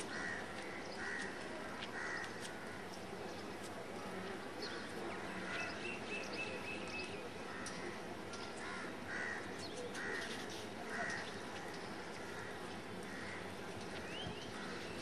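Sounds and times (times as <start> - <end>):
crows cawing: 0.0 - 2.8, 8.6 - 10.3, 12.3 - 13.5
steady background hiss: 0.0 - 15.0.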